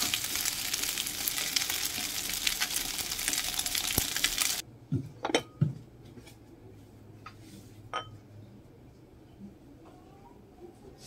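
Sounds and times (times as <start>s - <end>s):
rice sizzling in a pan: 0.0s - 4.6s
dishware clinking: 7.9s - 8.2s.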